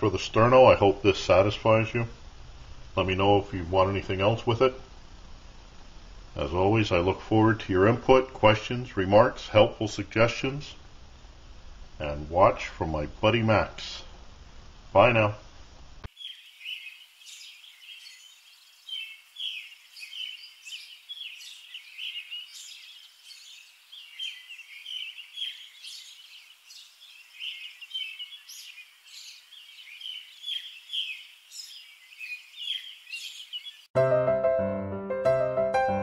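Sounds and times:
small birds chirping: 16.0s - 33.9s
piano music: 34.0s - 36.0s.

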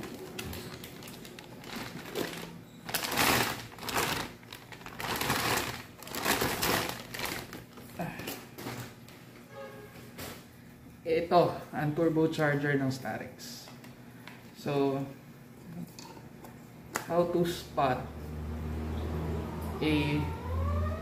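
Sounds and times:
plastic bag crinkling: 0.0s - 9.0s.

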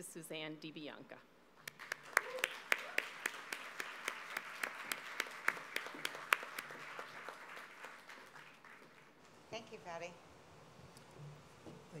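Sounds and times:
audience applauding: 1.6s - 9.2s.

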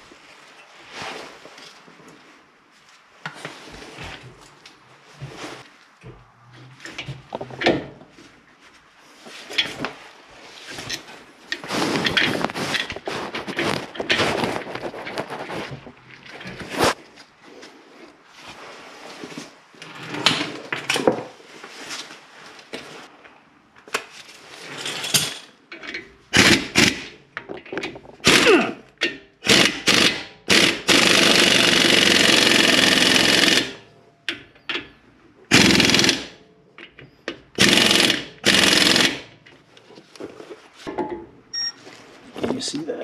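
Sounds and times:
impact wrench bursts: 26.4s - 27.1s, 28.2s - 28.7s, 29.4s - 33.9s, 35.5s - 36.4s, 37.6s - 39.4s.

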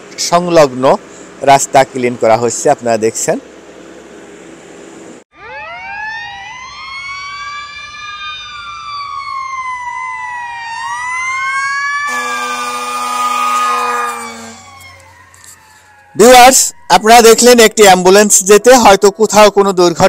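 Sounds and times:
ambulance siren wailing: 5.3s - 19.6s
steady horn tone: 12.0s - 14.7s.

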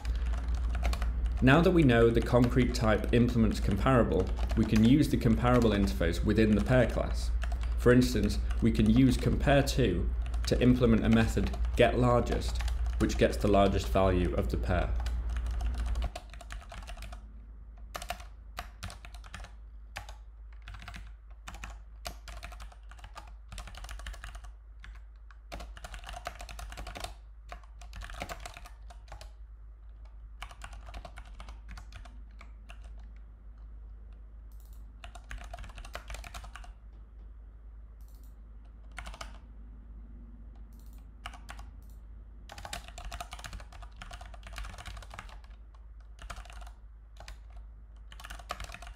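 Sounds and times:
typing on a keyboard: 0.0s - 9.4s, 10.2s - 17.2s, 17.8s - 33.2s, 34.5s - 36.8s, 38.0s - 39.4s, 40.6s - 48.9s
steady low hum: 0.0s - 48.9s.

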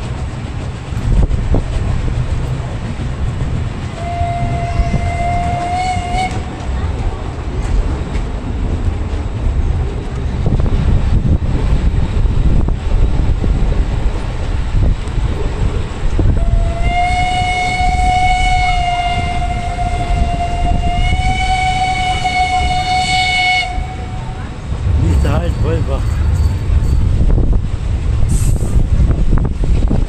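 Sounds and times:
train wheels clattering on track: 0.0s - 30.0s
steam locomotive whistle blast: 4.0s - 6.4s, 16.4s - 24.4s.

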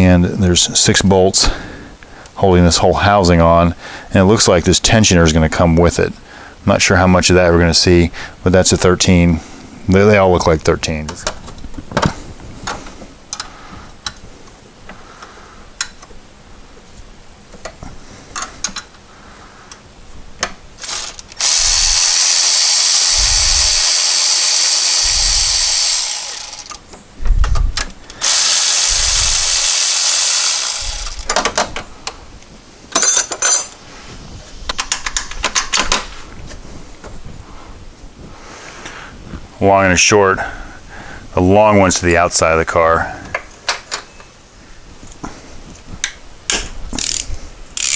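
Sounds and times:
power ratchet whining: 20.8s - 26.9s, 28.1s - 31.4s, 47.0s - 47.9s.

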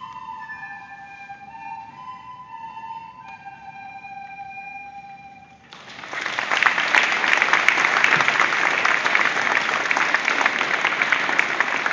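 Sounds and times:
audience applauding: 5.7s - 11.9s.

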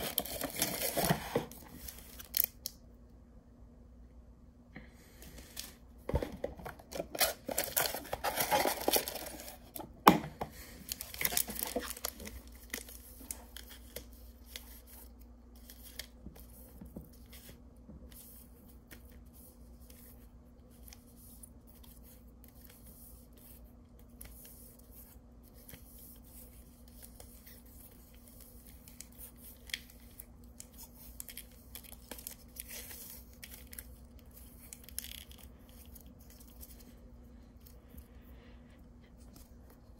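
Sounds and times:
foil wrappers crinkling: 6.8s - 9.8s, 10.6s - 14.8s.

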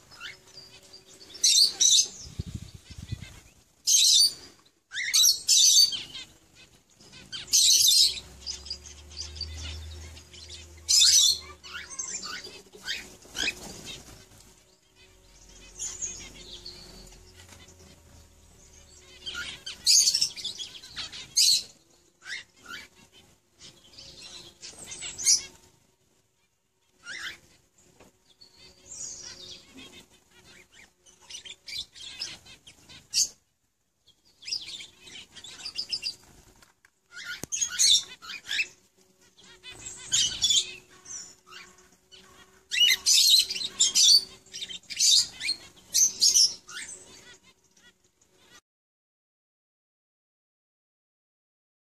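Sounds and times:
lovebird chirping: 0.0s - 6.3s, 7.0s - 13.6s, 37.1s - 47.8s.

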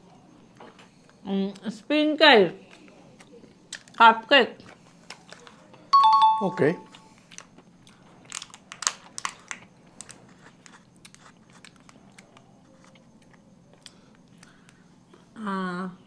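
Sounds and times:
plastic cup crackling: 8.3s - 13.0s.

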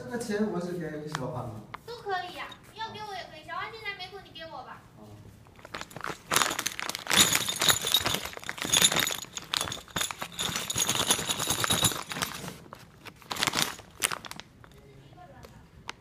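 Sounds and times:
metal parts clinking in plastic bag: 5.6s - 14.8s.

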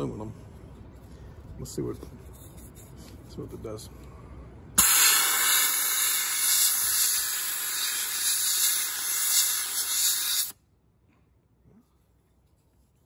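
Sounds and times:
blast gun spraying hiss: 4.8s - 10.6s.

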